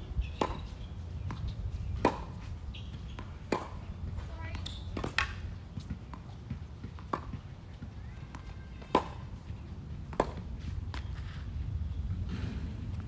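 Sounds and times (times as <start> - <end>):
tennis ball hit by racket: 0.4 - 0.7, 2.0 - 2.4, 3.1 - 3.9, 4.5 - 7.5, 8.3 - 9.2, 10.0 - 11.1.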